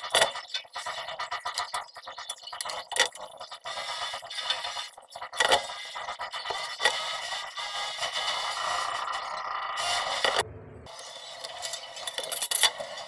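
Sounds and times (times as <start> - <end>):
hard objects clinking and clattering: 10.1 - 13.0.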